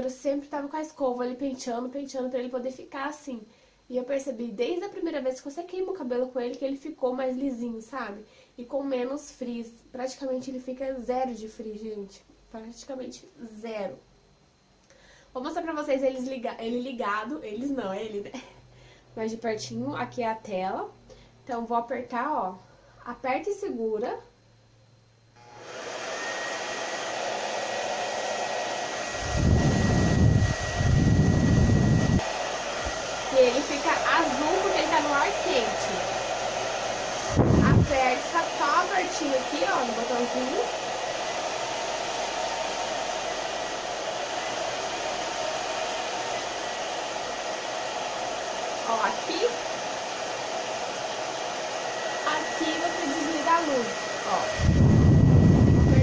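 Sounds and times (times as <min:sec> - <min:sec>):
hair dryer air rush and whine: 0:25.4 - 0:56.0.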